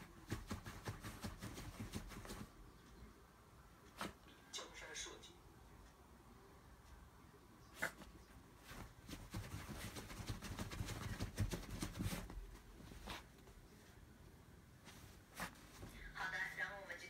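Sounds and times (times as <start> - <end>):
dog paws scratching fabric: 0.0 - 2.6, 7.8 - 14.0, 14.8 - 16.7.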